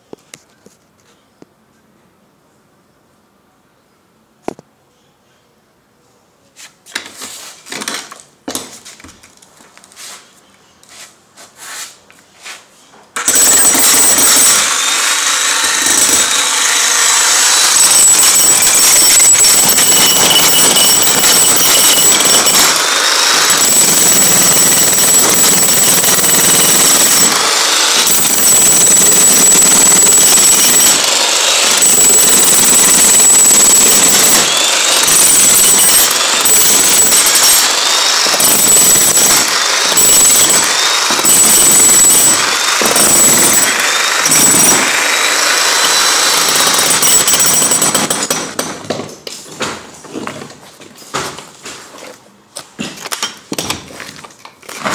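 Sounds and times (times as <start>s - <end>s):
demolition hammer chiselling concrete: 13.2s - 49.2s.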